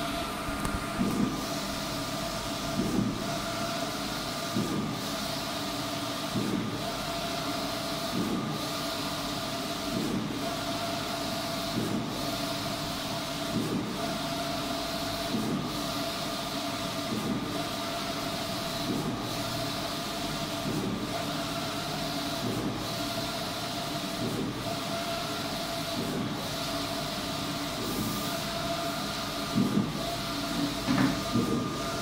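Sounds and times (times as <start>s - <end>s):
printer carriage hiss and hum: 0.0s - 32.0s
printer carriage knock: 30.8s - 31.6s.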